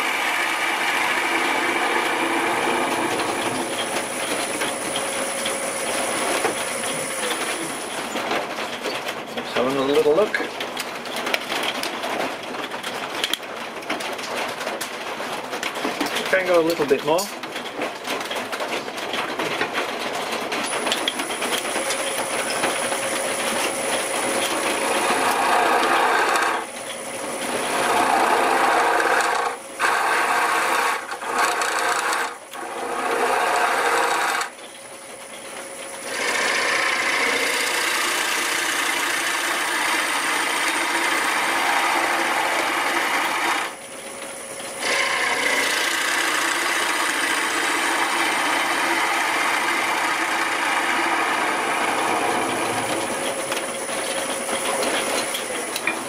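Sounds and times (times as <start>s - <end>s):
wood lathe tool cutting: 0.0s - 8.2s, 20.8s - 34.6s, 36.0s - 43.8s, 44.7s - 56.0s.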